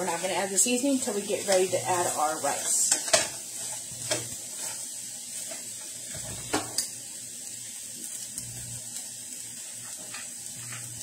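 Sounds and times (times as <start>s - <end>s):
food sizzling in a skillet: 0.0s - 11.0s
spatula stirring: 1.2s - 6.8s.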